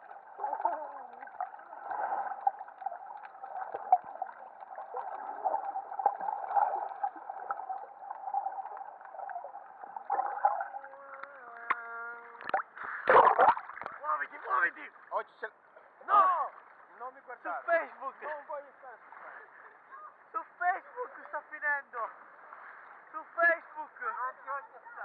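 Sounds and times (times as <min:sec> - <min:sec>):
underwater watery rush: 0:00.0 - 0:11.8, 0:12.4 - 0:14.5
bubbling crackles: 0:00.0 - 0:14.0.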